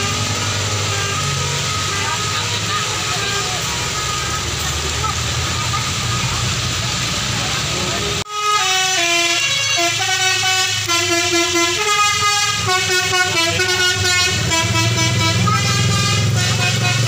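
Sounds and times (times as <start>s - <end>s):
musical air horn tune: 0.0s - 4.7s, 8.3s - 17.0s
bus engine running: 0.0s - 17.0s.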